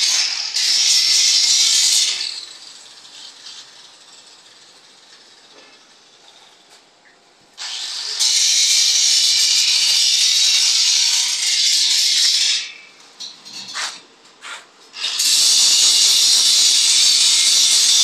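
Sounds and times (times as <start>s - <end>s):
arc welding crackling hiss: 0.0s - 2.5s, 7.6s - 12.7s, 13.6s - 18.0s.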